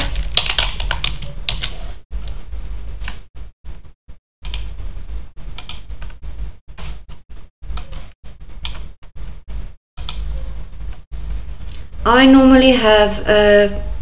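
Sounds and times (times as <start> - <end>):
keyboard and mouse clicks: 4.4 - 4.7, 5.5 - 6.2, 7.7 - 8.9, 10.0 - 10.2.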